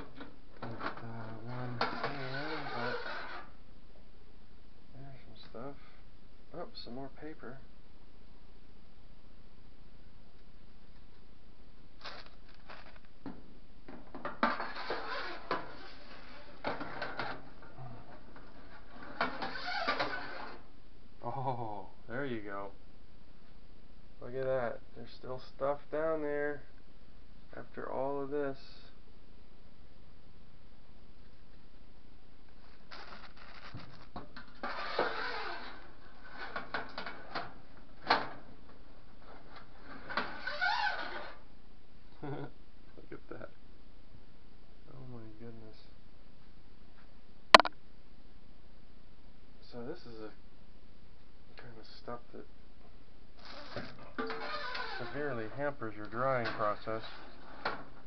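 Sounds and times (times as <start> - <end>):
sharp knock: 47.6 - 47.8.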